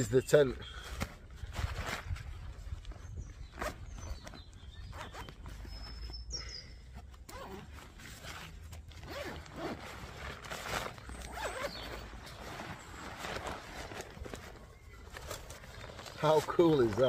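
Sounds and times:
nylon fabric rustling: 6.9s - 17.0s
zip being undone: 7.0s - 14.5s.

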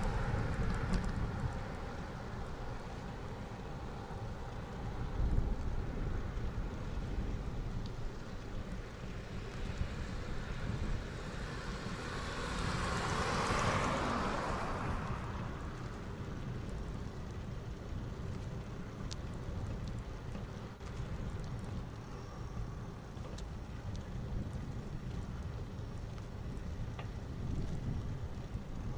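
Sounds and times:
car passing: 0.0s - 19.0s
wind rumbling on microphone: 0.0s - 28.9s
faint clicks: 15.8s - 28.8s.

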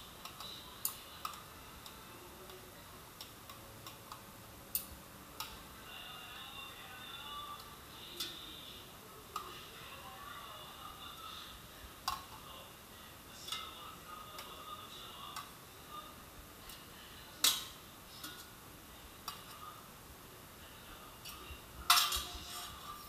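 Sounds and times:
metal tongs clinking on metal: 21.2s - 22.8s.

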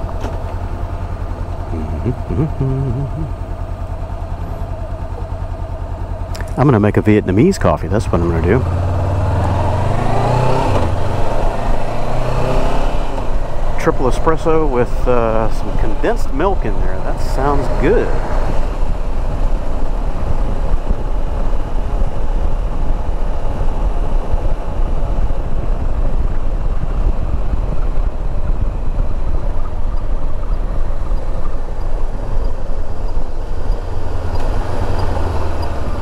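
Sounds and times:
motorcycle engine drone: 0.0s - 36.0s
motorcycle road noise: 0.0s - 36.0s
wind rush: 25.4s - 29.9s.

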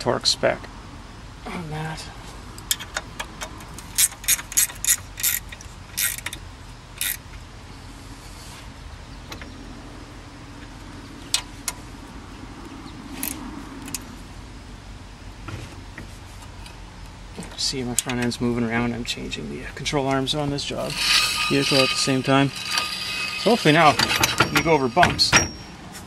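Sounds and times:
ratchet wrench clicking: 3.8s - 6.4s, 7.0s - 7.2s, 20.9s - 24.7s.

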